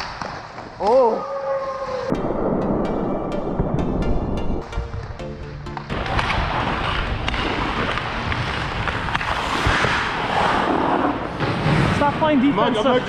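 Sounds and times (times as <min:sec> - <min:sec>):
skate blades scraping ice: 0:06.0 - 0:12.0.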